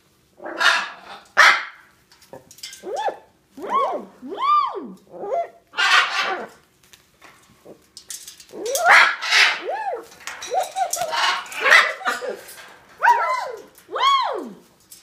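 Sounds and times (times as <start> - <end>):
parrot bark-like calls: 0.4 - 1.9, 2.8 - 6.6, 8.5 - 14.6
parrot raspy squawks: 5.3 - 6.5, 8.8 - 12.5.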